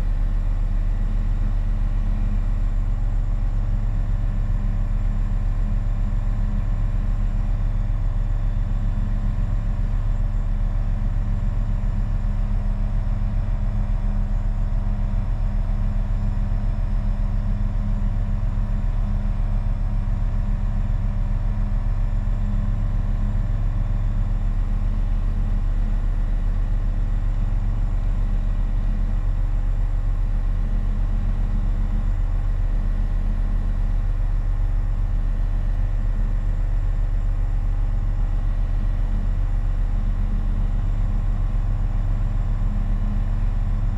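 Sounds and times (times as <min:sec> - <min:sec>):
aircraft engine and propeller drone: 0:00.0 - 0:43.9.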